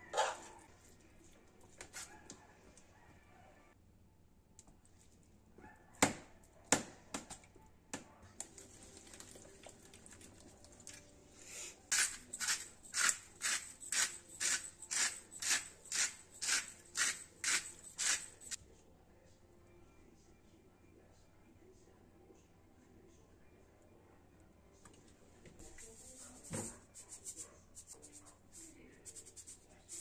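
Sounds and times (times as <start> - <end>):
short kitchen strokes: 11.9 - 18.6.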